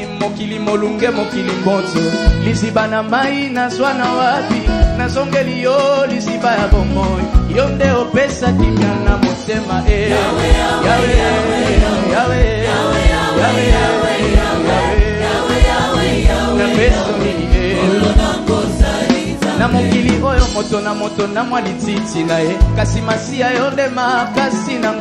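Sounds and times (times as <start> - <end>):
band with steady drum beat: 0.0 - 25.0
choir singing gospel: 9.6 - 20.6.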